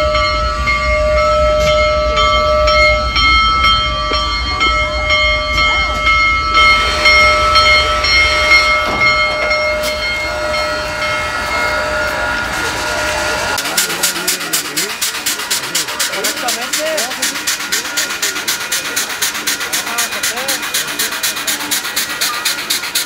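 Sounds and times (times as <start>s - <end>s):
locomotive bell ringing: 0.0s - 23.0s
steam locomotive rumbling: 0.0s - 23.0s.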